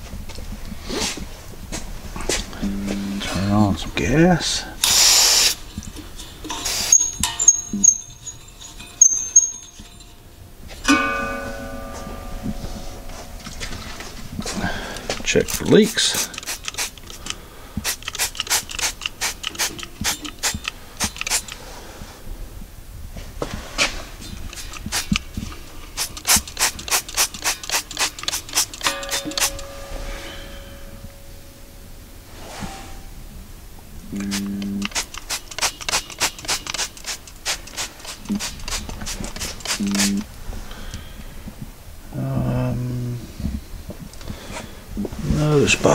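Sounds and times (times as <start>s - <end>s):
spray bottle squirting: 4.8s - 5.7s, 6.4s - 8.0s, 15.5s - 21.6s, 24.4s - 29.5s, 34.2s - 40.2s.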